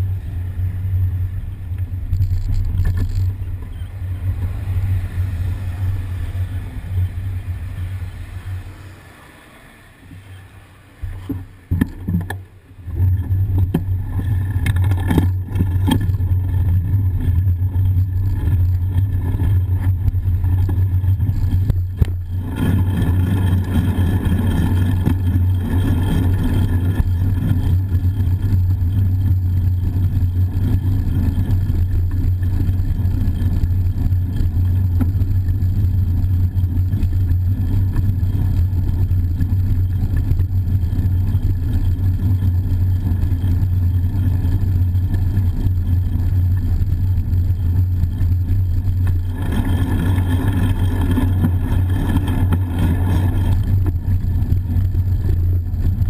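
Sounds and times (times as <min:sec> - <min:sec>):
wind rumble on microphone: 0:00.0 - 0:09.1, 0:11.0 - 0:56.0
traffic passing: 0:00.0 - 0:13.0
road noise: 0:00.0 - 0:56.0.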